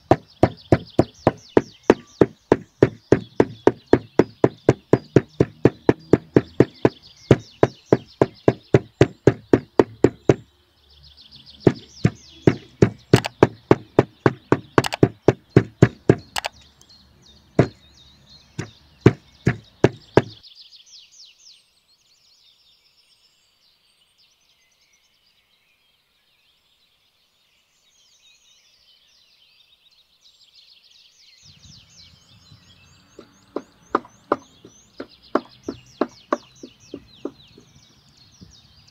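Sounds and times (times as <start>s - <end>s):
cleaver chopping meat on wood: 0.0s - 10.4s, 11.6s - 16.5s, 17.6s - 17.8s, 18.6s - 20.4s, 33.2s - 37.7s
faint bird chirps: 0.0s - 38.9s.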